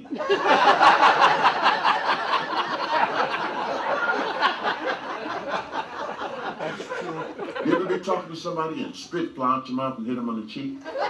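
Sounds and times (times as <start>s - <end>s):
audience laughing: 0.0s - 8.4s, 10.8s - 11.0s.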